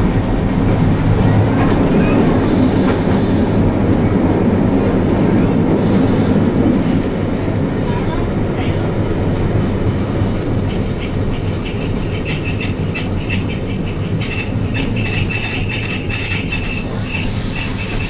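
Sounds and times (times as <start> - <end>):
wheels clicking and rattling on track: 0.0 - 8.2, 9.5 - 18.0
low rumble of running tram: 0.0 - 18.0
tram wheels squealing on rails: 1.2 - 3.7, 7.9 - 18.0.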